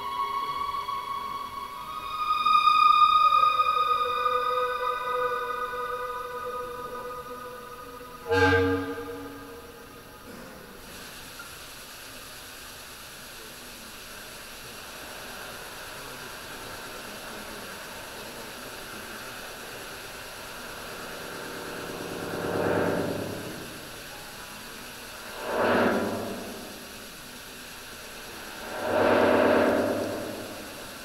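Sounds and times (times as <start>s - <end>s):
synthesizer noise wash: 0.0s - 10.3s, 14.8s - 31.0s.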